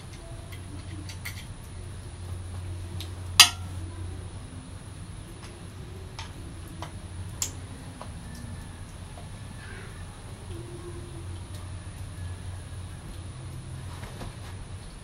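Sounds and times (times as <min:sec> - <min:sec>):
low steady hum: 0:00.0 - 0:15.0
metallic clicks of carburetor parts: 0:03.0 - 0:03.8, 0:06.2 - 0:07.6.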